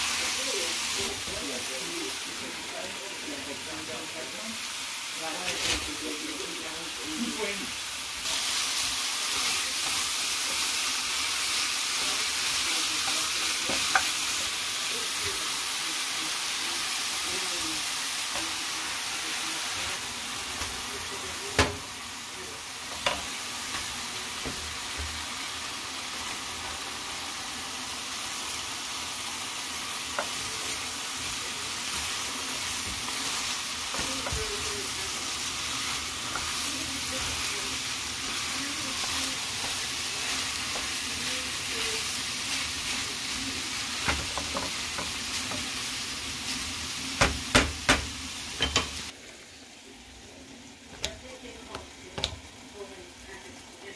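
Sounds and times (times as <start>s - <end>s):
eggs sizzling in a skillet: 0.0s - 53.9s
wooden spoon stirring: 30.0s - 43.3s
spoon knocking against pan: 47.2s - 48.9s.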